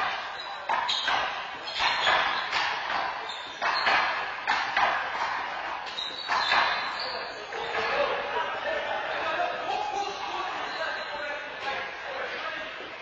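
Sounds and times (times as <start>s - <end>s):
ball hitting wall and floor: 0.0s - 7.0s.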